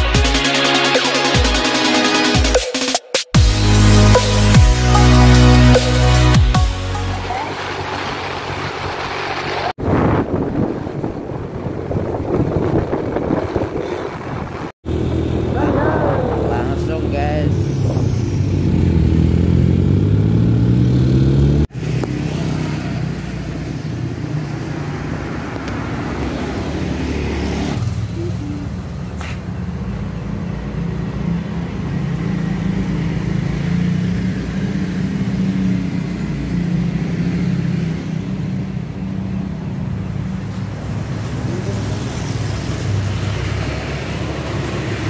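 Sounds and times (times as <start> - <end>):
street traffic noise: 0.0 - 45.0
vehicle engine accelerating: 3.4 - 45.0
motorbikes passing: 7.0 - 45.0.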